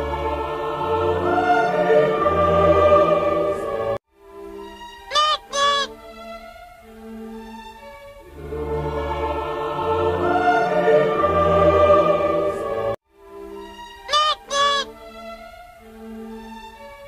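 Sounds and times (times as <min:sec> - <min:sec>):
dramatic choir and orchestra: 0:00.0 - 0:04.0, 0:06.1 - 0:13.0
soft background music: 0:00.0 - 0:17.0
short cartoon honks: 0:05.1 - 0:05.9, 0:14.1 - 0:14.9.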